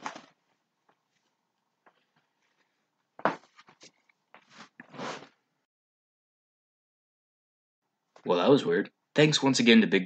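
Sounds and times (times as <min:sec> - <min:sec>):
clothing rustling: 0:00.0 - 0:05.4.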